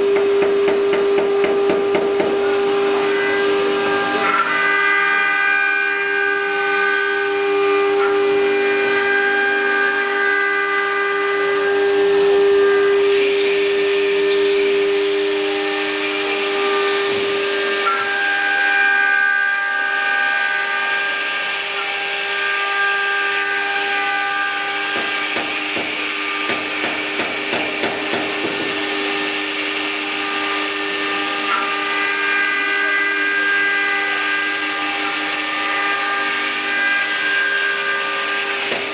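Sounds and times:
wood router spindles whining: 0.0 - 38.9.

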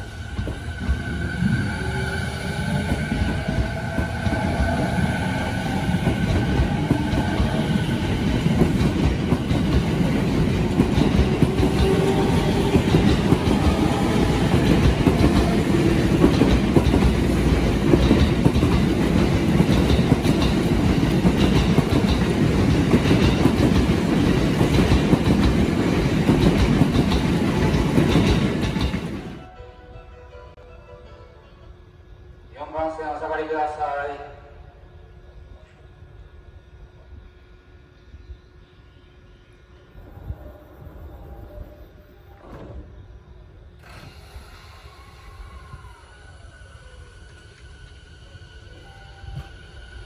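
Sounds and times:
electric train motor whine: 0.0 - 17.8, 35.0 - 50.0
train wheels clattering on rails: 2.6 - 29.4.

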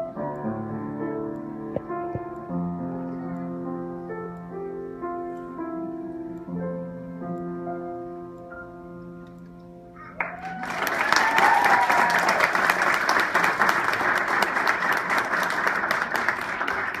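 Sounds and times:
piano chord: 0.0 - 10.1
audience applause: 10.1 - 17.0
audience cheer: 10.2 - 13.6.

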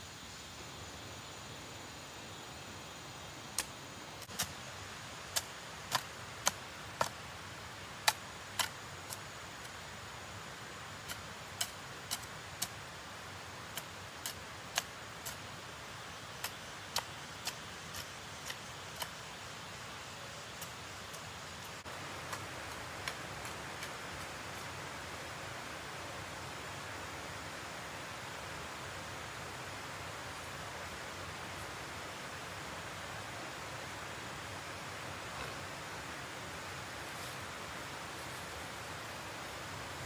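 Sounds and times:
steady hiss: 0.0 - 40.0.

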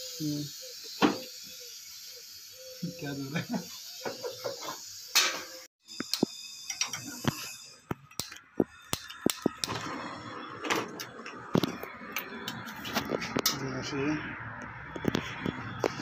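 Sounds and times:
torch hissing: 0.0 - 13.2
sharp clicks and knocks: 4.1 - 9.8.

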